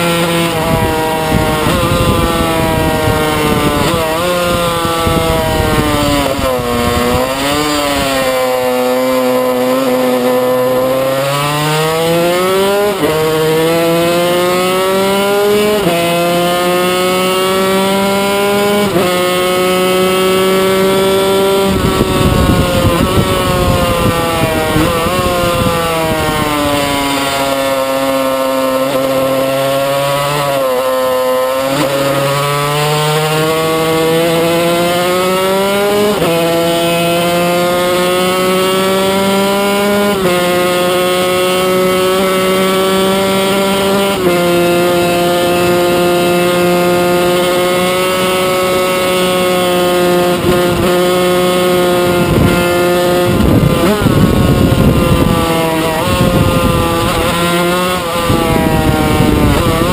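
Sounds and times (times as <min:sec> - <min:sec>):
racing motorcycle engine revving: 0:00.0 - 0:59.9.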